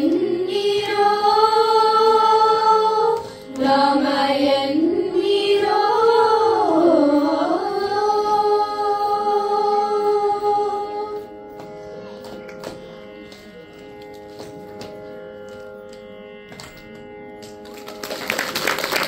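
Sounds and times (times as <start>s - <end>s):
children singing devotional song: 0.0s - 11.3s
steady drone: 0.0s - 17.6s.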